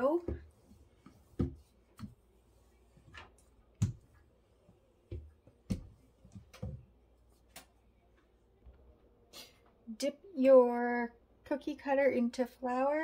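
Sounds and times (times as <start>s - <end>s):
rolling pin rolling over dough: 0.0s - 6.8s.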